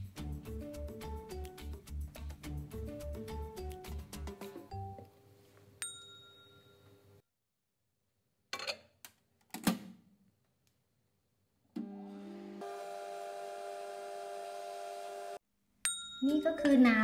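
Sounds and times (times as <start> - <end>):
microwave oven humming: 11.8 - 15.4.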